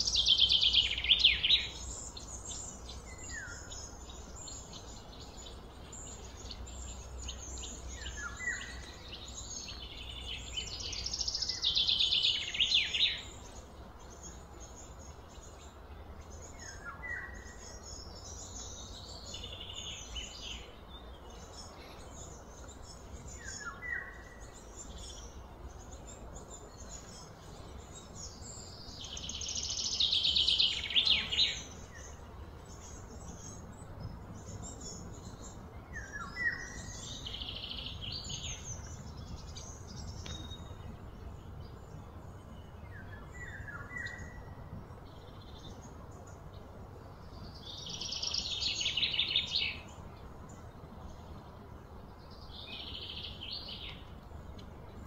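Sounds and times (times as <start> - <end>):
low steady rumble: 30.0 - 55.0.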